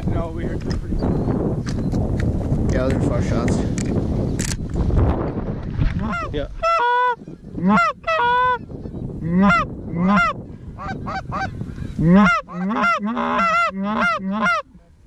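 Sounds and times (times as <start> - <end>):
goose honks and clucks: 6.0 - 8.6, 9.2 - 14.7.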